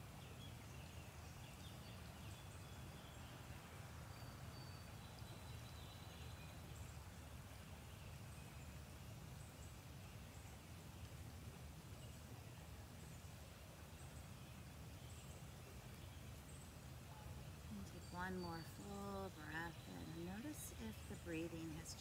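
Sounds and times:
low background rumble: 0:09.0 - 0:22.0.

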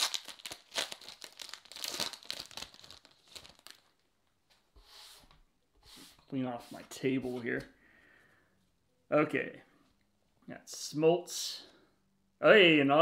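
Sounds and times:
card pack wrapper crinkling: 0:00.0 - 0:04.1.

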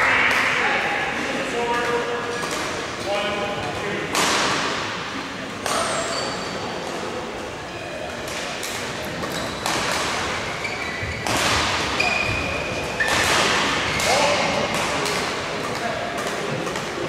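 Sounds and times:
racket hits echoing: 0:01.8 - 0:07.2, 0:08.1 - 0:17.0
shoes squeaking on court floor: 0:05.7 - 0:14.2.

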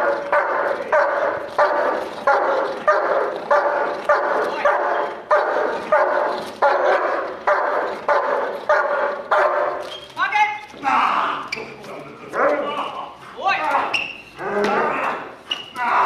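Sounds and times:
dog barking: 0:00.0 - 0:09.8.

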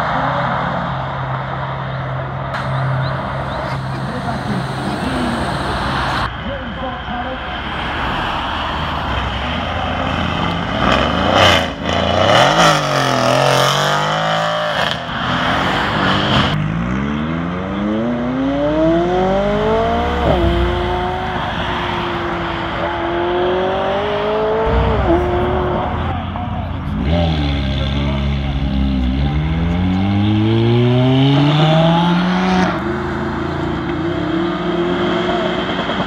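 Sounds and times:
car engine revving: 0:07.5 - 0:36.0
car accelerating hard: 0:09.3 - 0:36.0.

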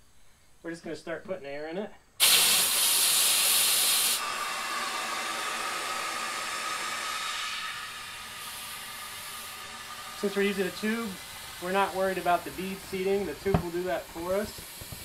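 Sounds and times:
compressed air hissing: 0:02.2 - 0:15.0
faint steady whistle: 0:03.4 - 0:15.0.

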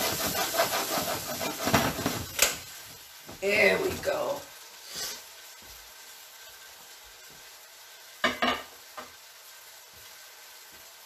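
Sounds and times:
food sizzling in a wok: 0:00.0 - 0:11.0
kitchenware knocks: 0:08.2 - 0:08.7.

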